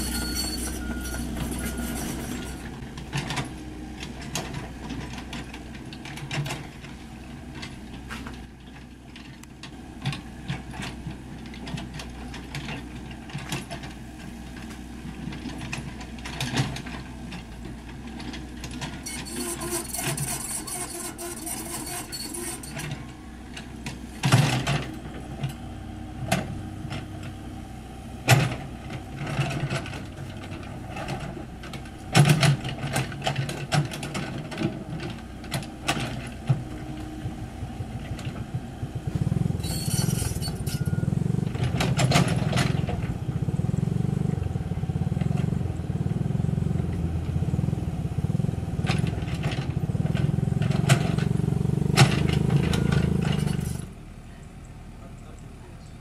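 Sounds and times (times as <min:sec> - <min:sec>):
excavator diesel engine running: 0:00.0 - 0:56.0
excavator bucket clanking: 0:28.2 - 0:43.2, 0:48.7 - 0:53.9.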